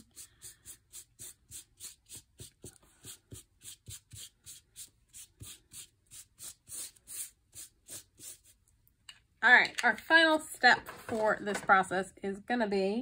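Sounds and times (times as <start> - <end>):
tool scrubbing on textured paper: 0.0 - 8.6.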